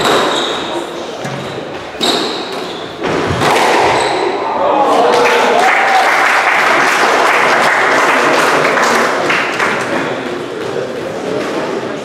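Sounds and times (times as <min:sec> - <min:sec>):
spectators applauding: 0:05.0 - 0:10.0.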